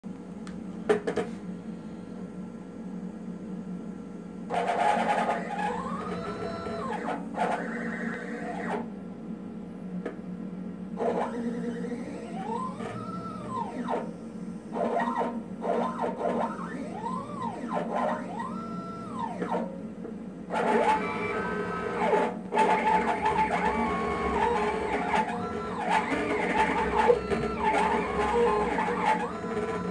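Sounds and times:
stepper motors whining: 4.5s - 8.9s, 10.9s - 19.8s, 20.5s - 29.9s.

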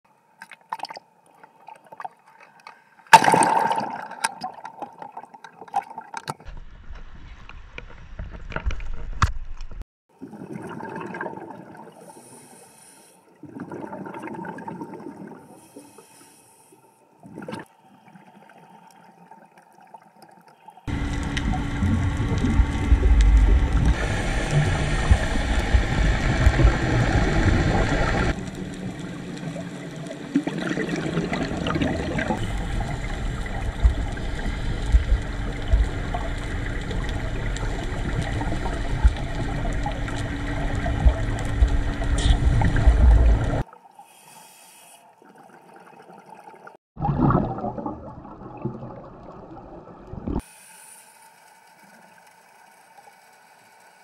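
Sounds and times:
water gurgling: 3.1s - 6.2s, 10.1s - 12.0s, 13.4s - 15.5s, 17.2s - 43.9s, 45.1s - 50.4s
underwater water rumble and hiss: 12.0s - 13.4s, 20.8s - 45.0s.

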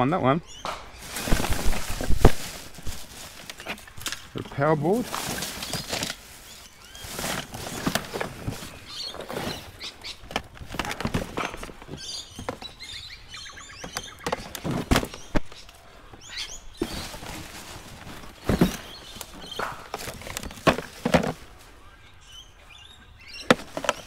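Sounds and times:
plastic and metal junk clattering: 1.0s - 12.8s, 13.8s - 15.6s, 16.8s - 21.6s, 23.5s - 24.0s.

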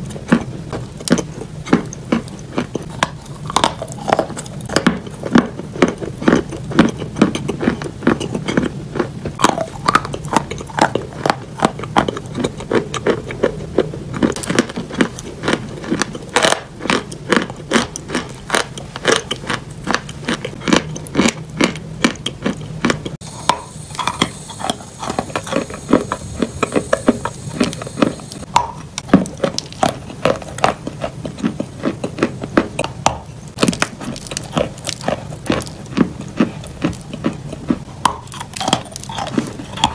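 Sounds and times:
chalk crunching in mouth: 0.0s - 39.9s
faint steady hiss: 23.2s - 29.6s.

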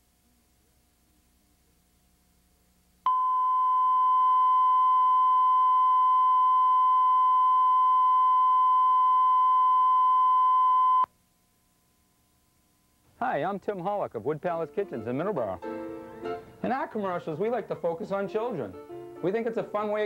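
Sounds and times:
electronic test tone: 3.1s - 11.1s.

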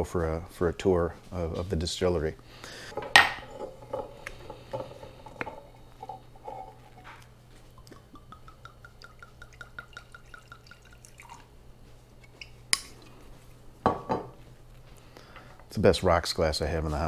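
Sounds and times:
glass clink: 3.0s - 7.2s, 13.8s - 14.3s
liquid glugging into glass: 7.8s - 11.5s.

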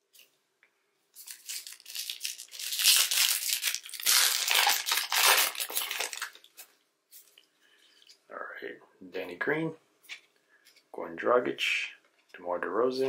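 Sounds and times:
wrapper crinkling and tearing: 1.2s - 6.7s.

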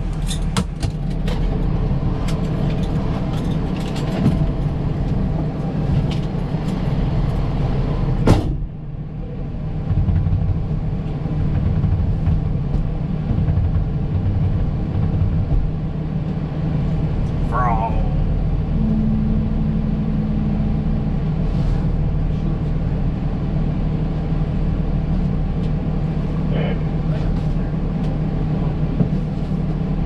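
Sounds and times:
diesel engine idling: 0.0s - 30.0s.

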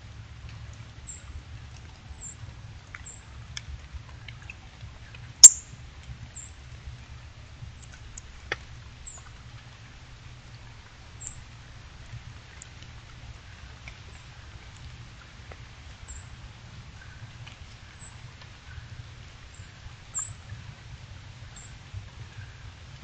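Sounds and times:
steady low rumble: 0.0s - 23.0s
bird chip calls: 5.4s - 5.7s, 20.1s - 20.4s.

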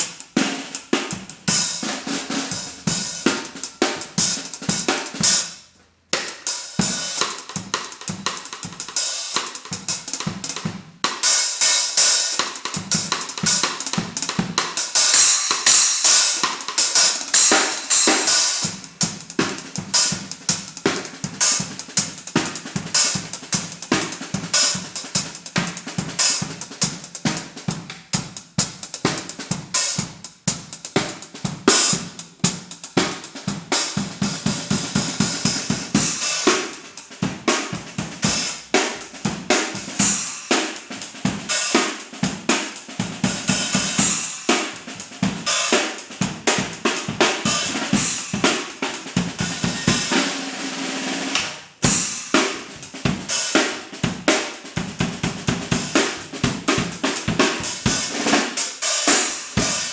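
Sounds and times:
drum kit playing fast groove: 0.0s - 59.9s.

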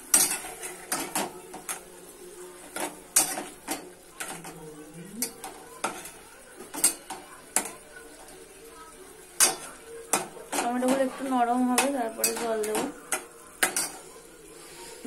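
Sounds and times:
metal spatula scraping a pot: 0.0s - 1.8s
faint sizzle of cooking: 0.0s - 15.0s.

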